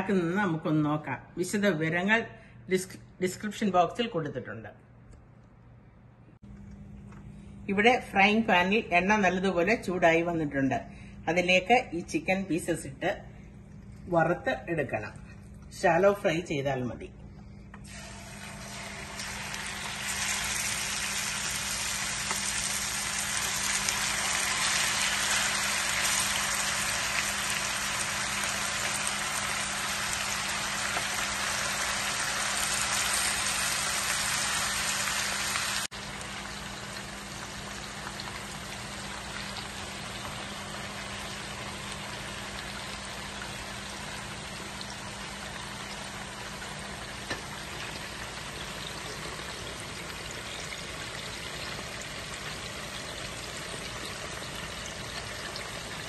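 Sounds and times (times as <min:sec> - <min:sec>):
chicken sizzling in frying pan: 0:17.9 - 0:56.0.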